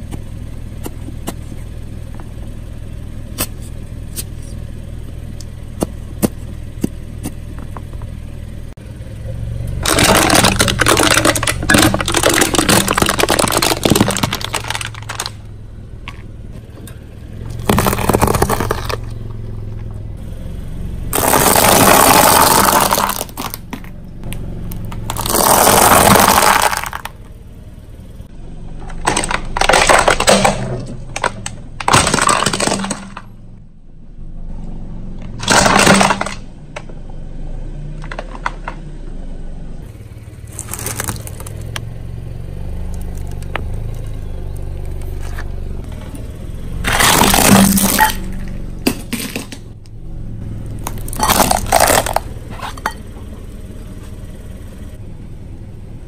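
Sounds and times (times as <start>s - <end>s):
car engine idling: 0.0s - 56.0s
tyre crushing cans and pasta: 9.8s - 15.4s, 17.5s - 19.2s, 21.1s - 23.9s, 24.8s - 27.2s, 28.8s - 33.3s, 35.3s - 36.9s, 40.5s - 41.7s, 46.8s - 49.7s, 50.8s - 53.0s.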